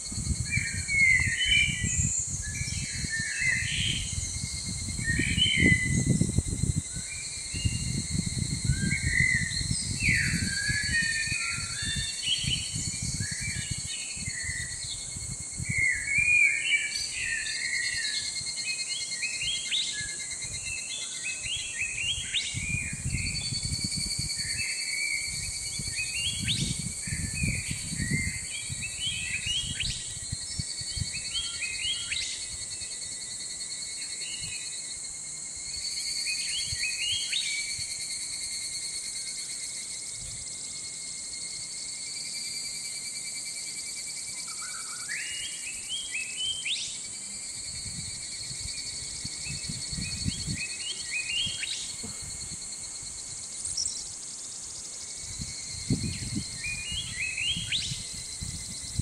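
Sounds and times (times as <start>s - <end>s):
wind rumbling on microphone: 0.0s - 18.5s, 21.4s - 32.8s, 47.4s - 54.0s, 55.1s - 59.0s
high-pitched insect trill: 0.0s - 59.0s
small birds chirping: 53.6s - 55.2s.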